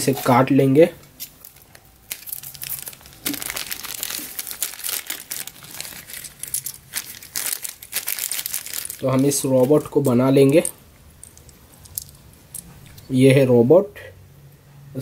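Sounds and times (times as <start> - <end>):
plastic wrapping crinkling: 1.2 - 12.5.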